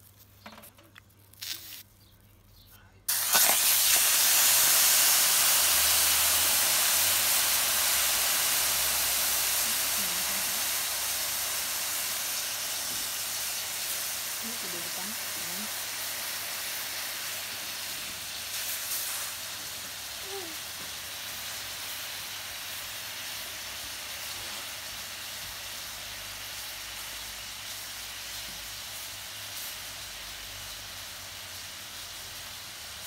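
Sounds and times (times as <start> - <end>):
crackles: 0.0 - 6.5
steak sizzling in a pan: 3.1 - 33.0.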